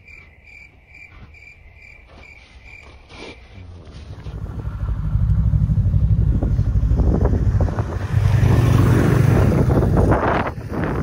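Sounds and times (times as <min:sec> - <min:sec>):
snowmobile engine droning: 0:04.0 - 0:11.0
wind rushing over microphone: 0:04.1 - 0:11.0.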